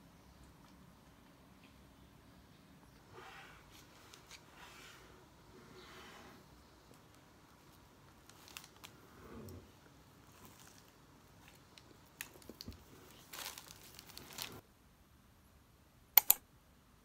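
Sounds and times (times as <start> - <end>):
paper wrapper crinkling: 7.6 - 9.0, 10.2 - 14.6
croissant crunching: 10.2 - 14.6
short clicks: 16.2 - 16.4.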